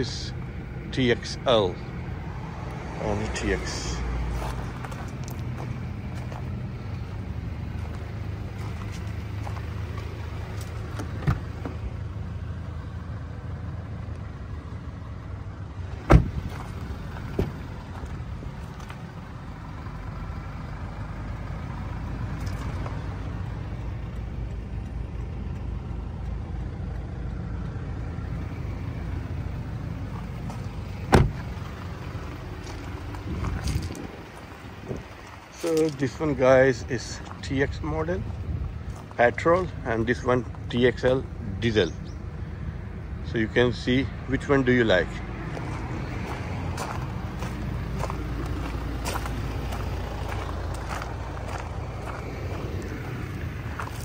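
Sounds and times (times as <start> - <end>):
car door shutting: 10.9 - 11.8, 16.0 - 16.7, 17.3 - 17.6, 31.0 - 31.6.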